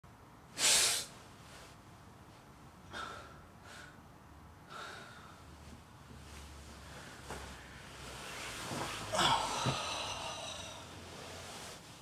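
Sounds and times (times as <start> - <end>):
man breathing faintly: 4.6 - 8.3, 9.1 - 11.8.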